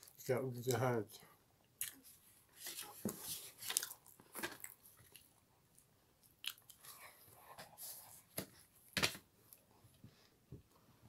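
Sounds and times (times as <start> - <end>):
chewing soft buns: 1.6 - 8.8.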